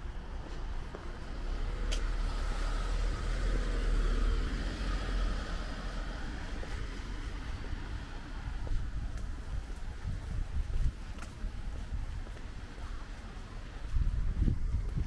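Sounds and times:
road vehicle passing by: 0.3s - 10.0s
wind rumbling on microphone: 1.2s - 15.0s.

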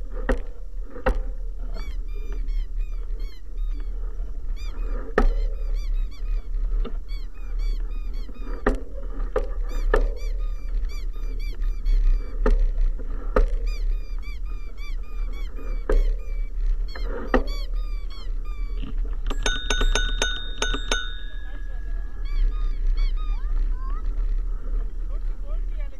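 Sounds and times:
low wind rumble: 0.0s - 25.9s
bike knocking over bumps: 0.1s - 2.5s, 5.1s - 5.8s, 8.6s - 10.7s, 12.3s - 13.8s
high chirping squeak: 1.7s - 8.7s, 9.6s - 12.4s, 13.6s - 23.8s.

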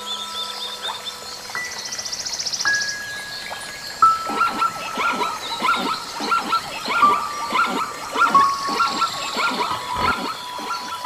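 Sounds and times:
rapid animal calls: 4.2s - 11.0s.

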